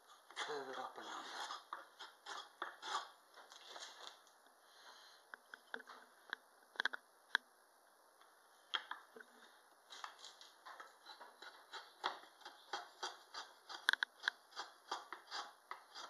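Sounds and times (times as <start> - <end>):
drawknife scraping wood: 0.3 - 3.2, 11.0 - 16.0.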